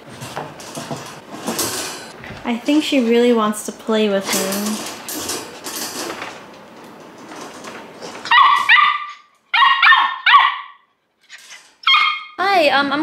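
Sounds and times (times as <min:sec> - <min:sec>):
puppy yelping: 0:08.3 - 0:10.8, 0:11.8 - 0:12.4.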